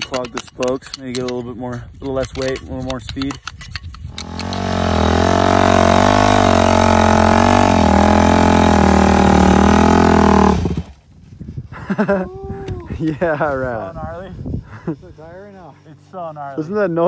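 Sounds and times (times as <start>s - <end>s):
dirt bike engine revving: 4.1s - 10.9s.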